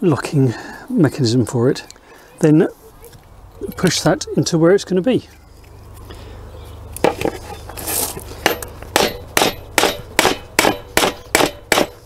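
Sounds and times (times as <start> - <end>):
metal scrape: 7.0 - 9.6
hammer striking steel: 8.4 - 12.0.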